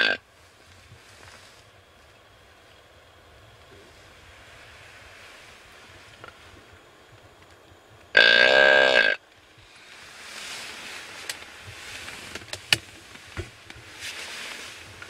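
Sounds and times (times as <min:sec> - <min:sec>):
deer call: 0:00.0 - 0:00.2, 0:08.1 - 0:09.9
soft rustling: 0:00.3 - 0:02.8, 0:03.5 - 0:07.4, 0:09.6 - 0:15.0.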